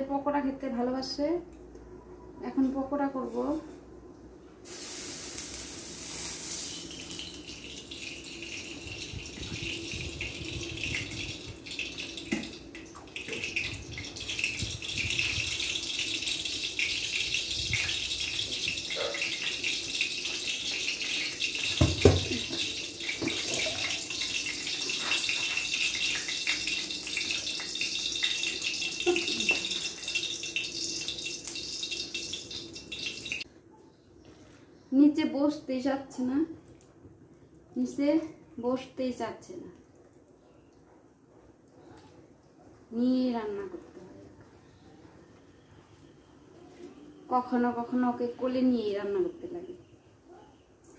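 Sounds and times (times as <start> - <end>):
stove and pan hissing: 4.6 - 12.6, 13.2 - 33.4.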